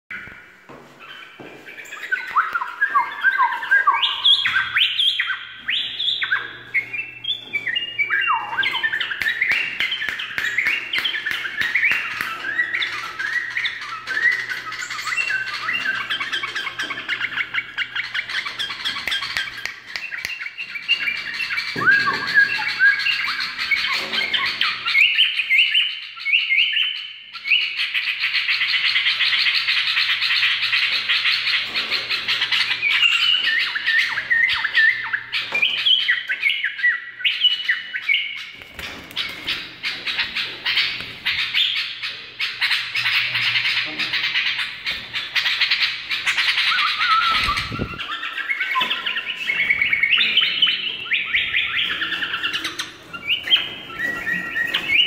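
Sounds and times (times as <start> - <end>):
birds chirping: 0.1 - 55.0
bulbul singing whistled phrases: 1.8 - 16.6, 19.0 - 23.9, 46.5 - 52.6.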